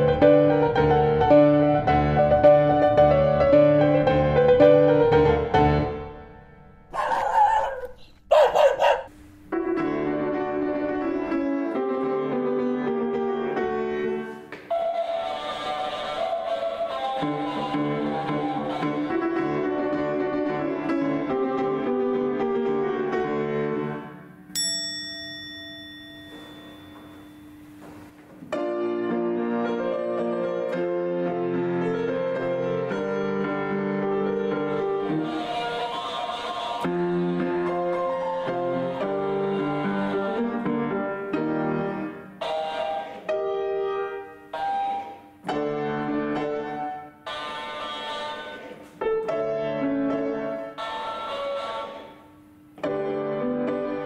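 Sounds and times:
piano playing pop melody: 0.0 - 7.1, 9.5 - 27.7, 28.4 - 52.1, 52.8 - 54.0
bell-like chime: 24.5 - 27.9.

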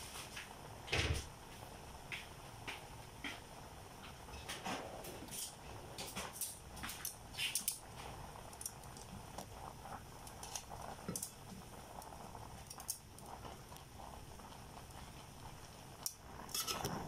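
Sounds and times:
water boiling in a pot: 0.0 - 17.0.

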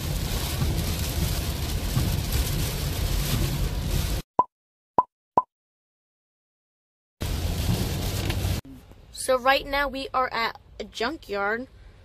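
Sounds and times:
heavy rain on a car: 0.0 - 4.2, 7.2 - 8.6
road rumble: 0.0 - 4.2, 7.2 - 12.0.

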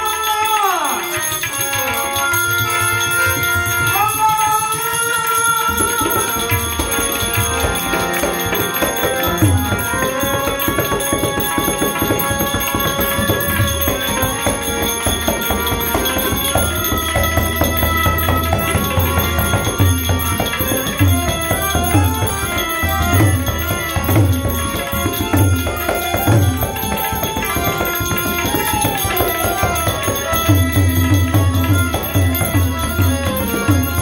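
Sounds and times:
harmonium: 0.0 - 34.0
small hand cymbals ringing: 0.0 - 34.0
tabla drumming: 0.0 - 34.0
man singing: 3.9 - 6.6.

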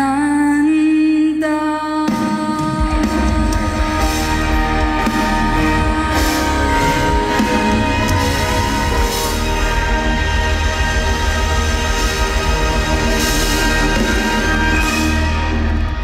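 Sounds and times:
woman singing long note: 0.0 - 8.9
live band with drums and bass: 2.0 - 16.0.

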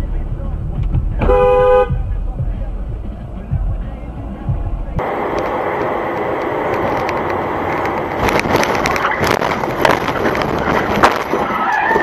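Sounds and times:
road noise inside moving car: 0.0 - 12.0
car crash bangs and crunches: 8.2 - 12.0.

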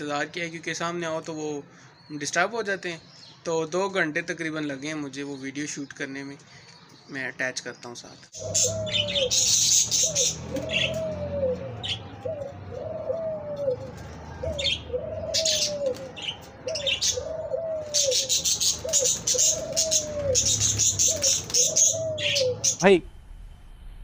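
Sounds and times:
small birds chirping: 0.0 - 22.9
dove cooing: 8.4 - 22.8.

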